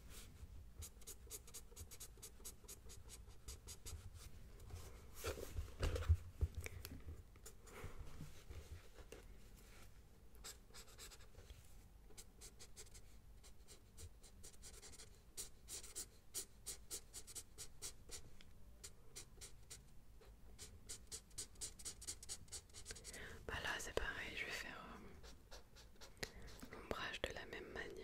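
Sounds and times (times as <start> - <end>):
pencil scratching on paper: 0.8 - 4.0, 10.4 - 11.3, 12.2 - 18.2, 19.2 - 19.8, 20.6 - 23.2, 25.2 - 26.8.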